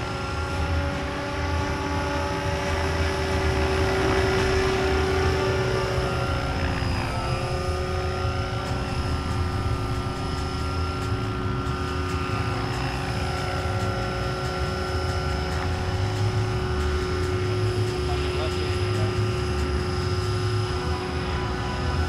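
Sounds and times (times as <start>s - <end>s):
rc helicopter motor whine: 0.0s - 22.0s
rotor blades rumbling: 0.0s - 22.0s.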